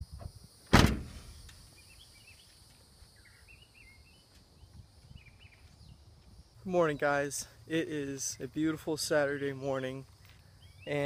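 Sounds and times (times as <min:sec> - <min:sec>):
faint high-pitched hiss: 0:00.0 - 0:11.0
car door shutting: 0:00.7 - 0:01.5
faint birds chirping: 0:01.0 - 0:11.0.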